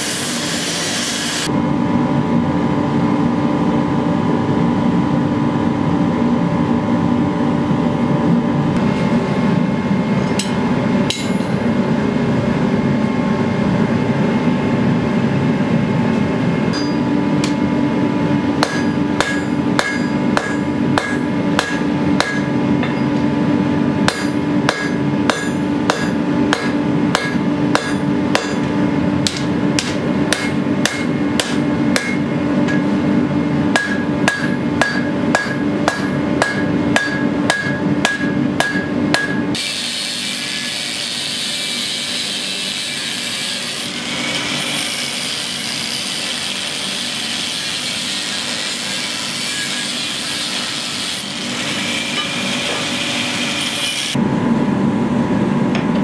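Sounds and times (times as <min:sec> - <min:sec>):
steady loud hum: 0:00.0 - 0:56.0
hammer striking steel on anvil: 0:10.2 - 0:11.6, 0:16.7 - 0:17.6, 0:18.6 - 0:23.3, 0:24.0 - 0:33.0, 0:33.7 - 0:44.0, 0:47.5 - 0:53.8.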